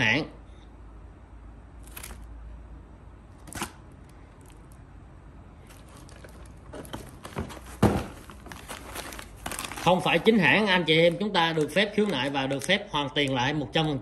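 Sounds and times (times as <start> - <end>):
plastic packaging rustling: 5.6 - 13.4
box thump: 6.2 - 9.7.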